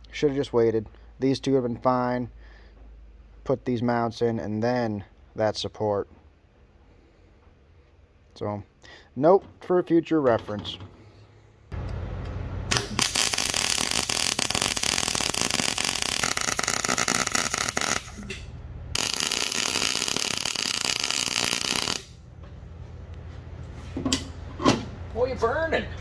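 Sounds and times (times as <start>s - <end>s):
steady low hum: 0.0s - 26.0s
welding arc crackling: 12.6s - 18.4s, 19.0s - 22.2s.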